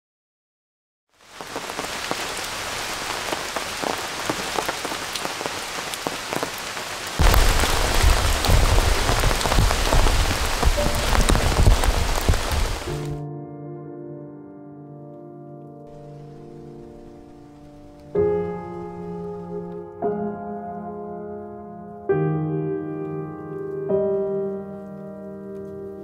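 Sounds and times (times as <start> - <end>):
rain falling: 1.2 - 13.2, 15.9 - 19.8
deep rumble: 7.2 - 13.1.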